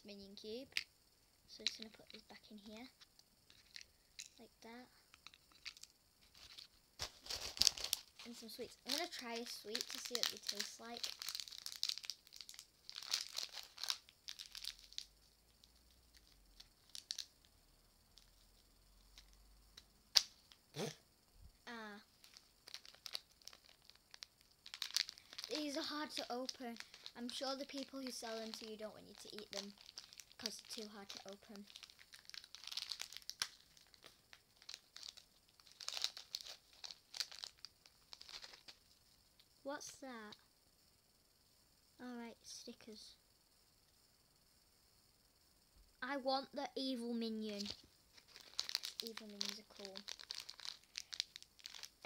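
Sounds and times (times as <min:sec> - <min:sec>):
sweets packet crinkling: 0:01.6 - 0:04.4, 0:05.1 - 0:17.4, 0:21.8 - 0:38.8, 0:47.4 - 0:52.0.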